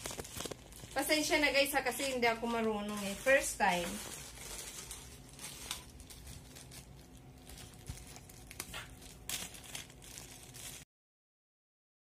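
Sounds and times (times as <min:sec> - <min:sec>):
plastic packaging crinkling: 0:00.0 - 0:10.9.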